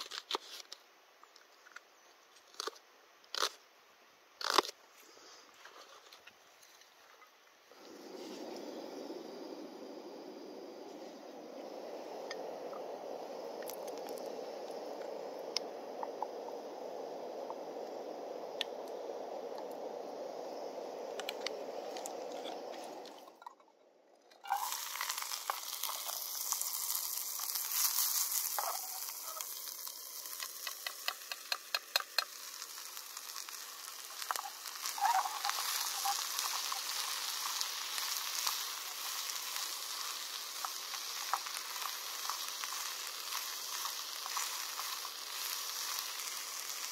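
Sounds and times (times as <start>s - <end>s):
vegetables sizzling in a pan: 24.4s - 46.9s.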